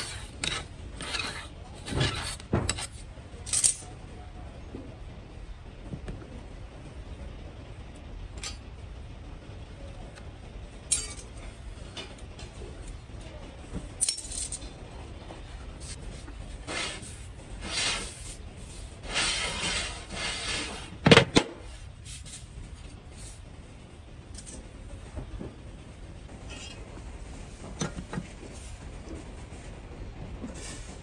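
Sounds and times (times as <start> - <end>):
scraping: 0.0 - 3.0
metallic clinks of parts: 3.4 - 3.9, 10.9 - 11.4, 14.0 - 14.7.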